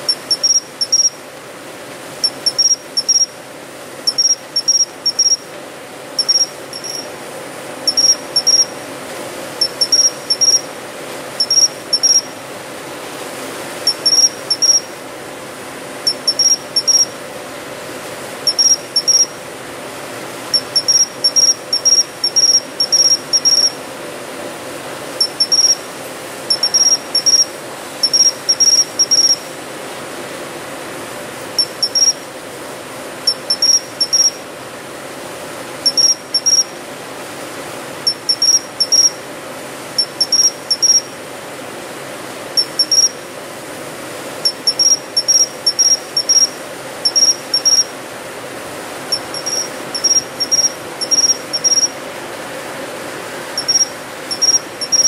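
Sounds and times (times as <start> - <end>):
cricket chirping: 0.0 - 1.2, 2.2 - 3.4, 4.1 - 5.5, 6.2 - 7.1, 7.9 - 8.7, 9.6 - 10.7, 11.4 - 12.3, 13.9 - 14.9, 16.1 - 17.1, 18.5 - 19.4, 20.5 - 23.8, 25.2 - 25.9, 26.5 - 29.5, 31.6 - 32.2, 33.3 - 34.4, 35.8 - 36.7, 38.1 - 39.2, 40.0 - 41.1, 42.6 - 43.2, 44.4 - 47.9, 49.1 - 52.0, 53.6 - 55.0
low background hum: 0.0 - 55.0.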